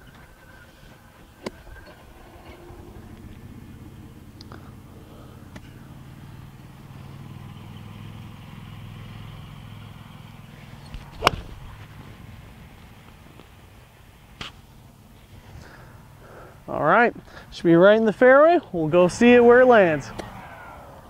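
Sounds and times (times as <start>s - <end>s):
low background rumble: 0.0s - 8.7s
golf club striking ball: 1.4s - 1.6s, 10.8s - 11.9s, 20.1s - 20.4s.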